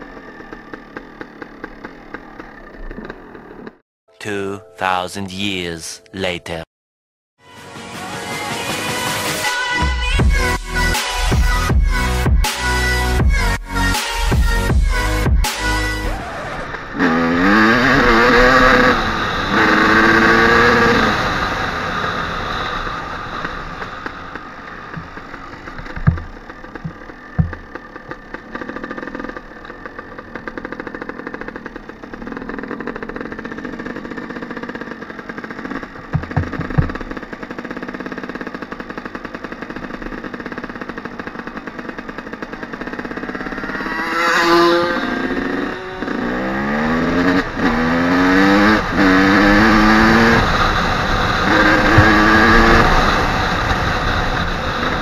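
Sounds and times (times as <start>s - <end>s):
dirt bike engine revving: 15.1s - 55.0s
short thumps: 25.8s - 27.8s, 36.1s - 37.2s.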